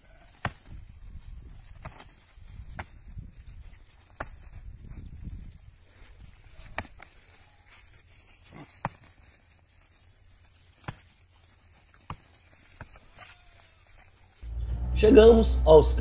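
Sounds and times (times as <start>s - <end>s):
faint low rumble: 14.4s - 16.0s.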